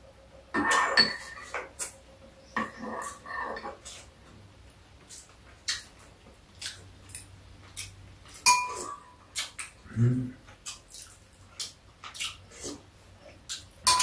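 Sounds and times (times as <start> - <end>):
metal spoons clinking against bowls: 0.6 - 1.9, 8.4 - 9.1.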